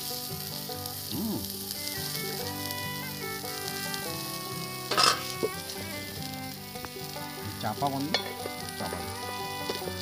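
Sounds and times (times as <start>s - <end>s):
background music: 0.0s - 10.0s
curry sizzling and bubbling in a pot: 0.0s - 10.0s
pot lid clattering: 4.9s - 5.5s, 8.0s - 9.8s.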